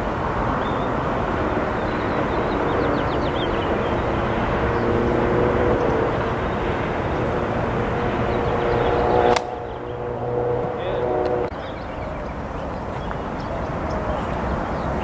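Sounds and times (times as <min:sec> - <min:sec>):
distant engine drone: 0:00.0 - 0:15.0
loud outdoor rumble: 0:00.0 - 0:15.0
sharp click: 0:09.3 - 0:09.6.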